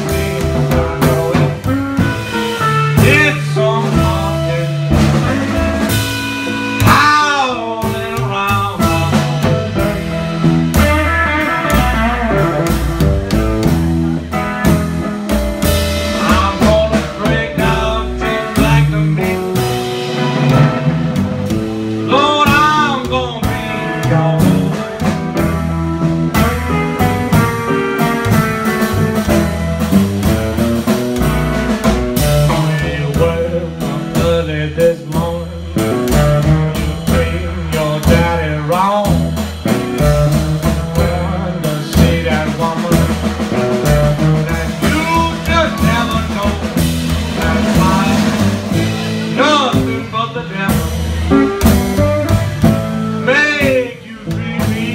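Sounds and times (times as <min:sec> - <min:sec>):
man singing: 0:00.0 - 0:10.2, 0:15.9 - 0:20.0, 0:21.4 - 0:25.6, 0:32.2 - 0:54.9
upright bass: 0:00.0 - 0:54.9.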